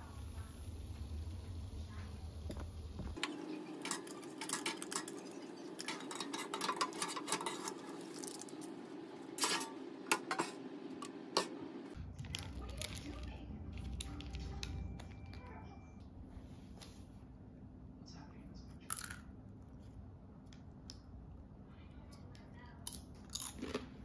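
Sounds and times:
steady low hum: 0:00.0 - 0:24.0
metal tray and plate clinking: 0:03.2 - 0:08.6, 0:09.4 - 0:10.6.

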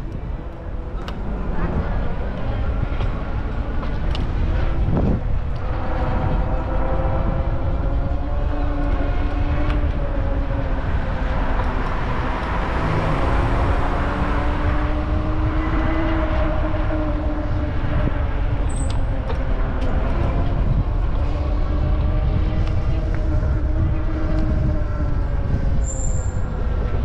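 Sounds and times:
wind and road rumble: 0:00.0 - 0:27.0
car passing: 0:05.7 - 0:27.0.

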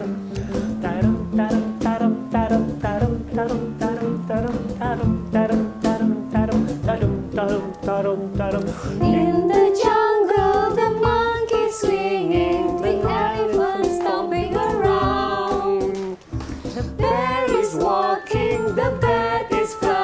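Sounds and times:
person singing: 0:00.0 - 0:16.2
plucked-string accompaniment: 0:08.5 - 0:19.2.

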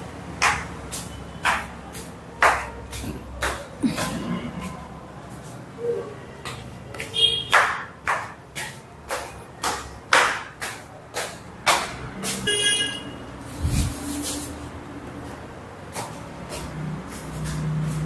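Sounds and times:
footsteps on stairs: 0:00.2 - 0:05.6, 0:06.4 - 0:12.5, 0:15.1 - 0:18.0.

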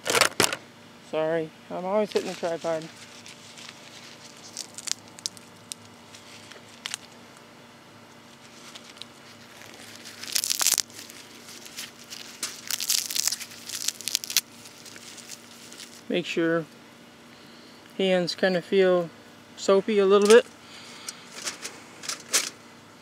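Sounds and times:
leaves crushed and torn by hand: 0:02.0 - 0:07.5, 0:08.2 - 0:16.1, 0:20.1 - 0:21.7.

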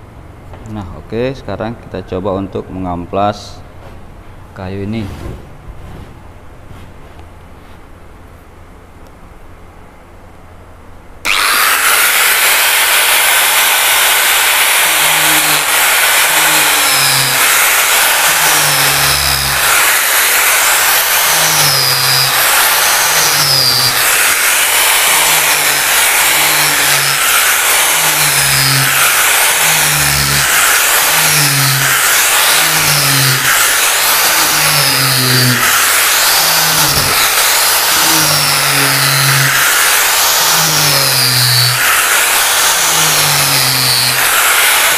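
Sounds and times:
angle grinder running: 0:11.2 - 0:44.9
sandpaper sanding wood: 0:11.3 - 0:44.9.

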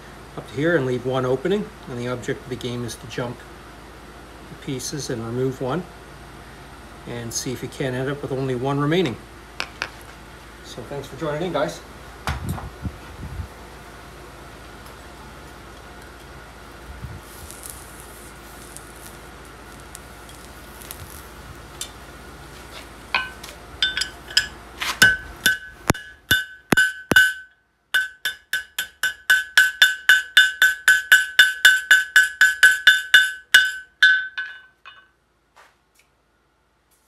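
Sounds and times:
low steady hum: 0:00.0 - 0:37.0
hammer striking steel on anvil: 0:23.1 - 0:35.1.

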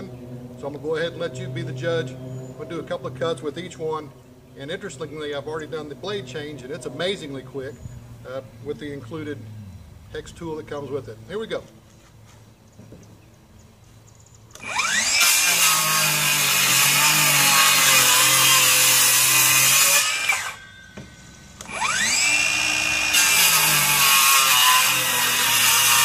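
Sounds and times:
circular saw cutting wood: 0:14.5 - 0:26.0
saw motor whining: 0:14.5 - 0:26.0.

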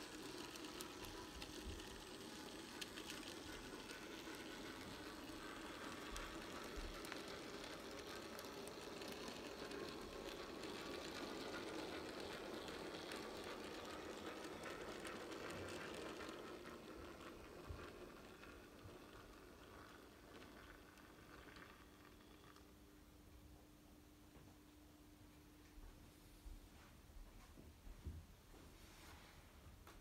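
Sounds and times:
model train motor whirring: 0:00.0 - 0:22.7.

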